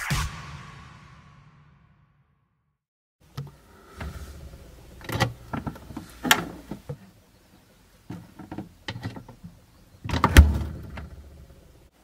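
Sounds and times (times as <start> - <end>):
refrigerator door opening: 10.0 - 11.1
refrigerator door shutting: 10.1 - 11.1.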